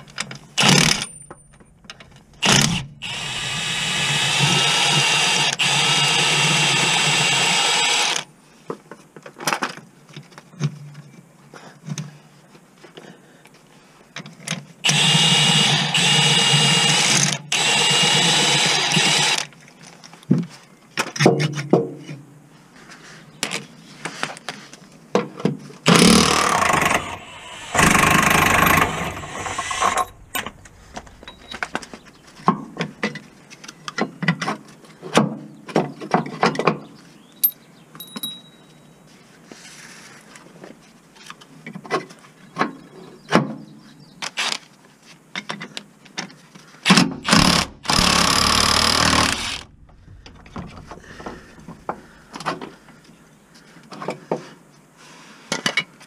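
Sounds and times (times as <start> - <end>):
clinks of tools and metal parts: 0.0 - 2.3, 37.4 - 39.0
impact wrench hammering: 25.9 - 31.9.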